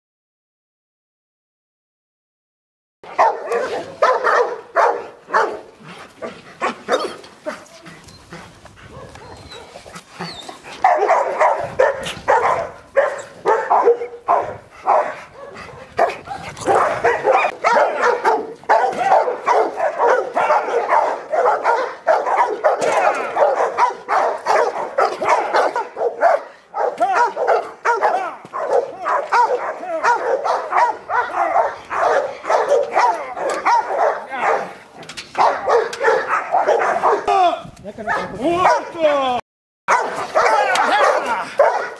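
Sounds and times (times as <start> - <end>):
dog barking: 3.0 - 7.9, 8.9 - 9.8, 10.8 - 37.3, 38.1 - 39.0, 39.9 - 41.9.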